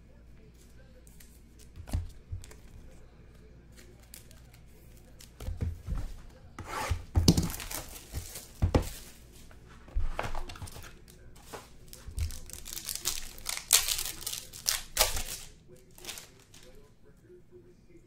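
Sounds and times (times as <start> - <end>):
packaging tearing and crinkling: 7.2 - 9.1, 10.4 - 16.6.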